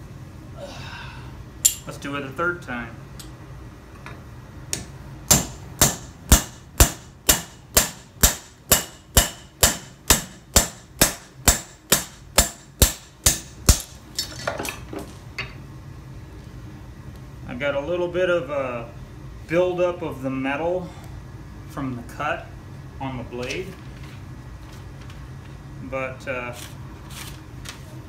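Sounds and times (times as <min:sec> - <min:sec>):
hammer striking knife on anvil: 0:04.8 - 0:14.3.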